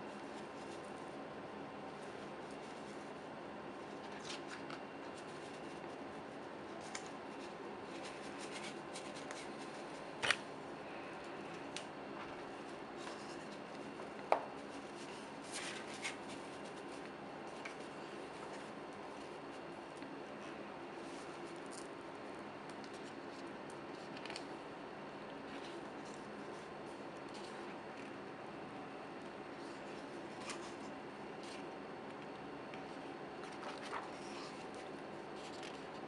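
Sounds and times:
faint background hum: 0.0s - 36.0s
book pages turning: 3.9s - 6.0s, 6.7s - 10.4s, 11.5s - 20.1s, 22.7s - 24.5s, 29.6s - 36.0s.

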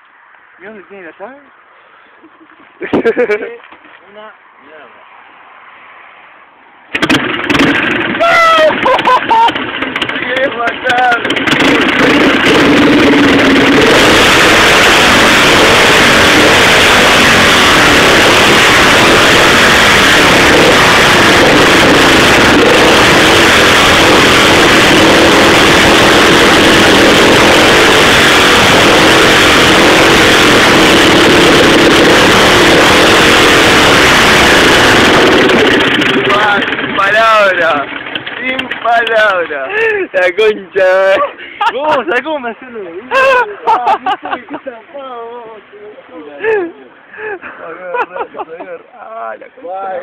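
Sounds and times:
motorcycle engine running hard: 6.9s - 40.0s.

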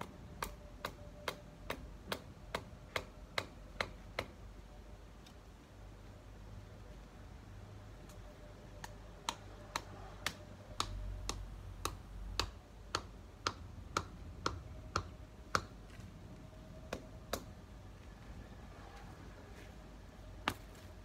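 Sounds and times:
stake tapped with block knocks: 0.0s - 4.4s, 8.8s - 15.9s, 16.9s - 17.5s.

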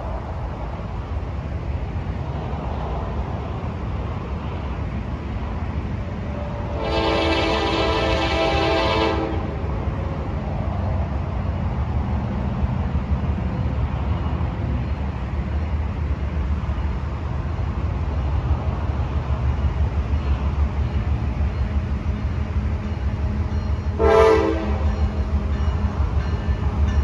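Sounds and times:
diesel locomotive rumbling: 0.0s - 27.0s
train horn blast: 6.7s - 9.6s, 23.9s - 25.1s.

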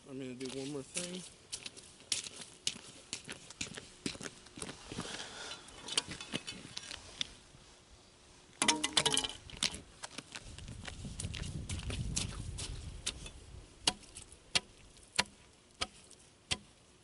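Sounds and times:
footsteps crunching on snow: 0.2s - 7.4s, 9.4s - 13.3s.

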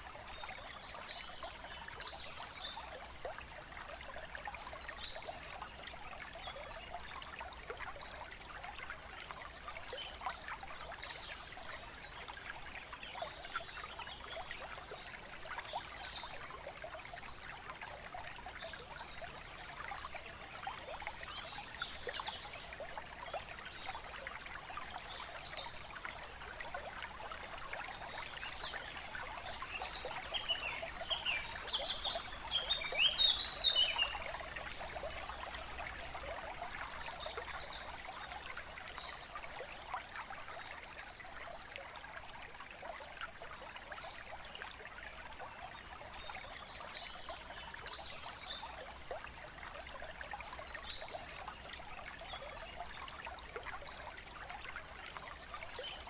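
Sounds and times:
water trickling: 0.0s - 56.0s.

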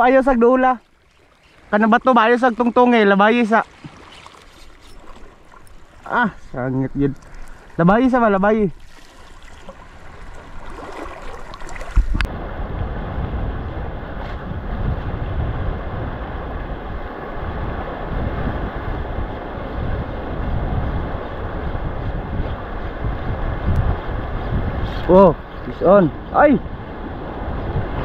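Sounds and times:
sea water washing: 0.0s - 28.0s
wind buffeting microphone: 9.6s - 28.0s.

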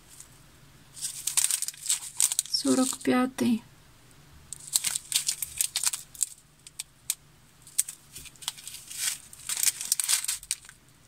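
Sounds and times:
plastic bags crinkling: 1.0s - 3.2s, 4.5s - 10.9s.

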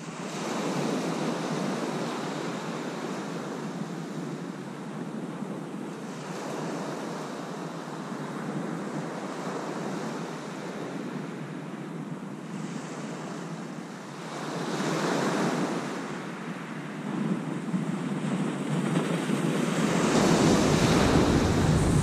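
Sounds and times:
sea waves breaking on beach: 18.2s - 22.0s.

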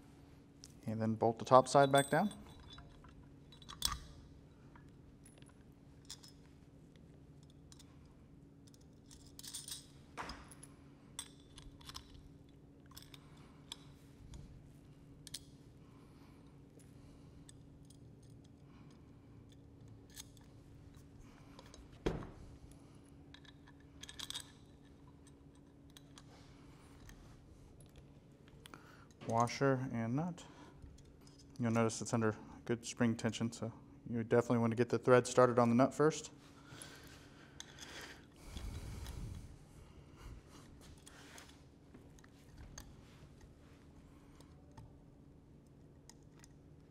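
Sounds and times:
faint steady hum: 0.0s - 46.9s
metal parts clicking and clinking: 1.4s - 6.5s, 7.4s - 14.5s, 15.2s - 15.6s, 16.8s - 29.7s, 30.8s - 32.1s, 36.7s - 39.4s.

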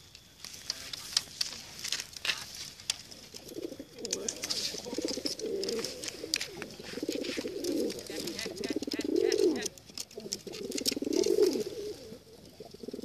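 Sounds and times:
pigeon cooing: 3.1s - 13.0s.

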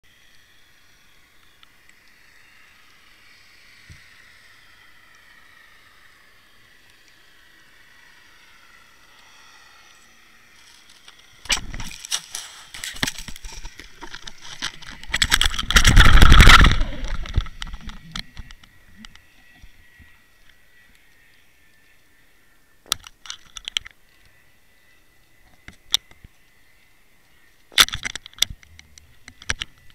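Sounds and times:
knocks and scraping against housing: 10.6s - 19.1s.

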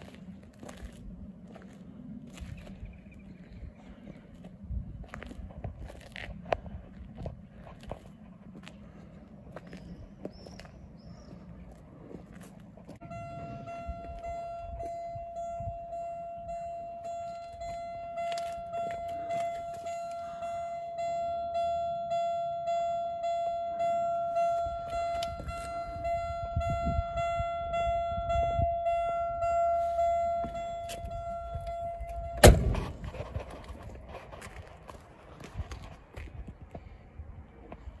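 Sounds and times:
car warning buzzer: 13.0s - 32.6s
car door slamming: 32.4s - 33.1s.

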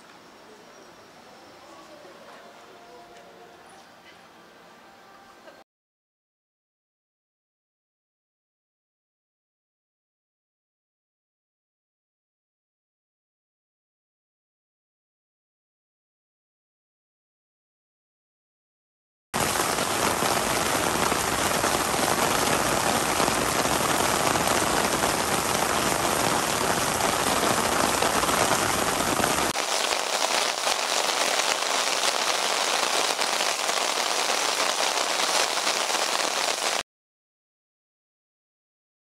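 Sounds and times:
steady rain hiss: 19.4s - 36.8s.

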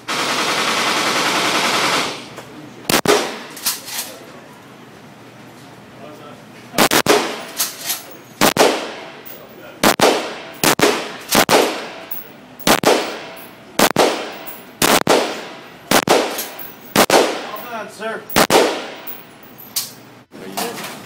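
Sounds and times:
handgun shots echoing: 9.8s - 17.7s, 18.3s - 19.3s.

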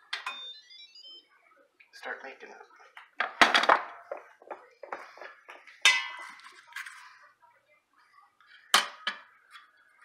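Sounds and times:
spoon clinking on metal pot: 5.8s - 6.4s.

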